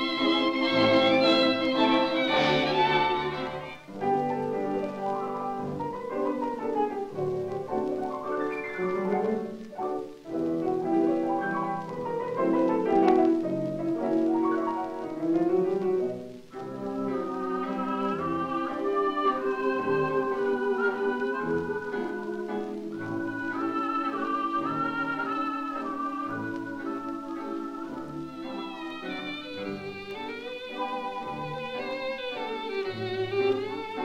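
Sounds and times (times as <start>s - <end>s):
orchestra playing melody: 0.0s - 34.0s.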